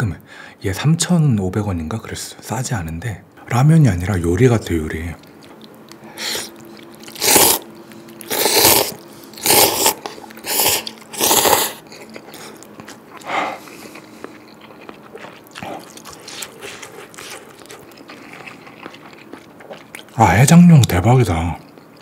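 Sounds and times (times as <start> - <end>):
soft chewing: 4.6 - 20.2, 20.8 - 22.0
person slurping noodles: 6.2 - 11.8.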